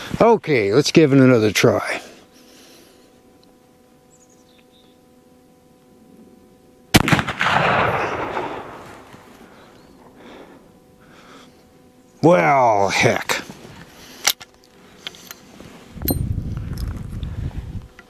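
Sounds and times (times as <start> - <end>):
rifle shot with echo: 6.9 - 9.0.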